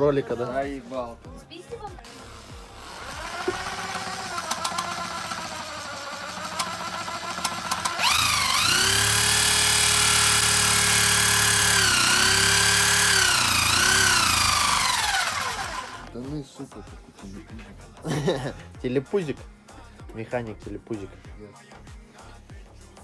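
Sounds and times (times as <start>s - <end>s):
drill motor whine: 2.1s - 16.1s.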